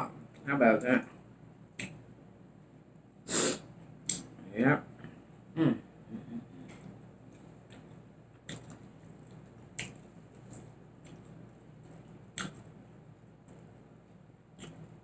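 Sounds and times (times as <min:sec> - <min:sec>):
wet mouth smacks and clicks: 0:01.8 - 0:02.0, 0:07.8 - 0:11.2, 0:12.3 - 0:12.7
person chewing: 0:06.5 - 0:12.8, 0:14.5 - 0:15.0.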